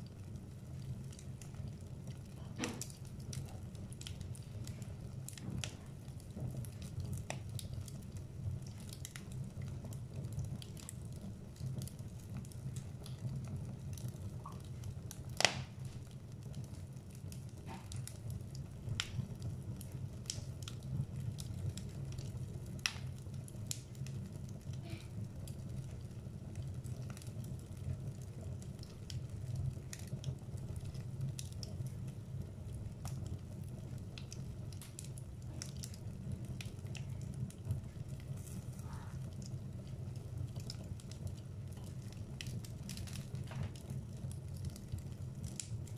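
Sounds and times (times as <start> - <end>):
low fire rumble: 0.0 - 45.9
wood fire crackling and popping: 0.0 - 45.9.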